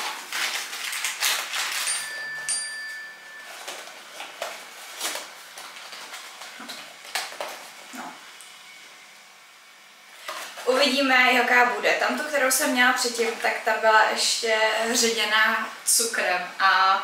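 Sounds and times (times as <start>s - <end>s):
cardboard package handled: 0.0s - 2.5s, 3.4s - 8.0s
thin high ringing tone: 1.5s - 4.2s.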